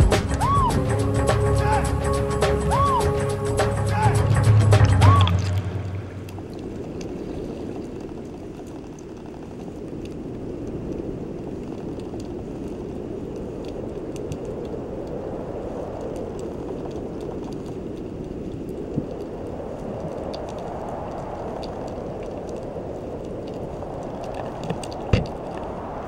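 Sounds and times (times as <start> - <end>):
underwater rush of water: 0.0 - 26.0
faint clicks: 6.2 - 26.0.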